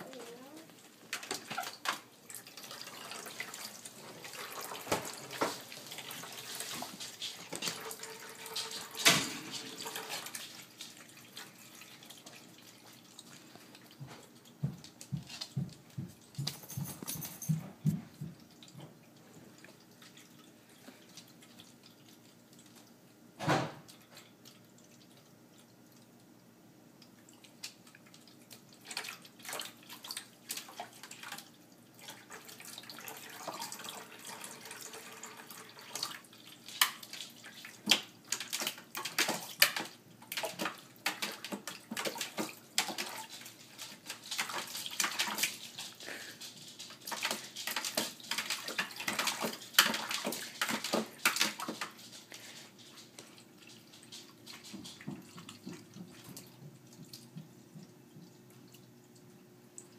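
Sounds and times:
puppy splashing water: 0:00.0 - 0:23.1, 0:23.8 - 0:59.9
thump: 0:23.4 - 0:23.8.

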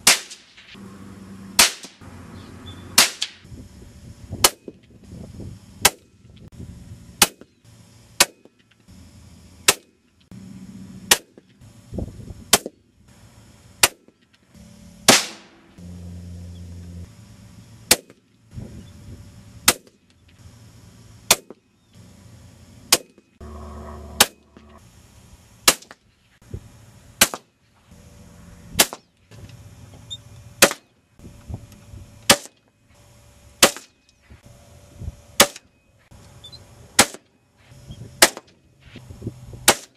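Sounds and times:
rifle shots: 0:15.1 - 0:15.6
brief low hums: 0:23.4 - 0:24.8.

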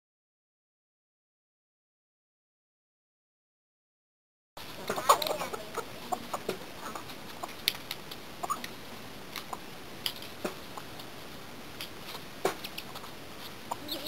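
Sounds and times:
chickens clucking: 0:04.6 - 0:14.0
chickens pecking on dirt: 0:04.6 - 0:14.0.

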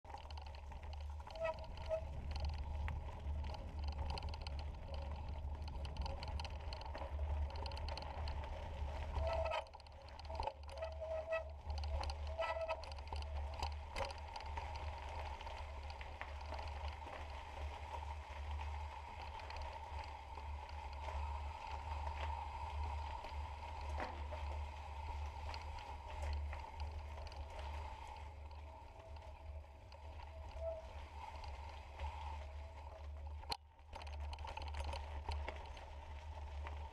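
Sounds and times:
steady low rumble: 0:00.0 - 0:10.9
bike rattling: 0:00.0 - 0:36.9
bike tyres on gravel: 0:00.0 - 0:36.9.

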